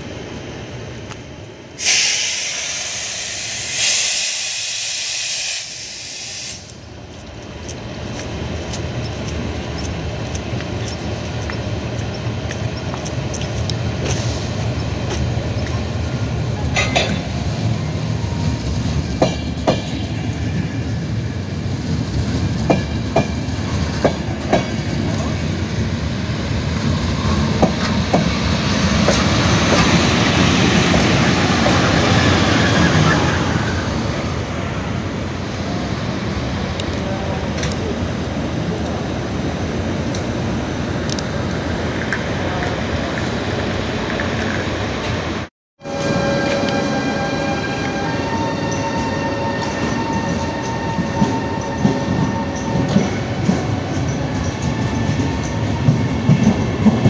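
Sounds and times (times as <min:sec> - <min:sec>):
electric locomotive rumble: 0:00.0 - 0:57.0
wheels clicking over rail joints: 0:07.0 - 0:15.9.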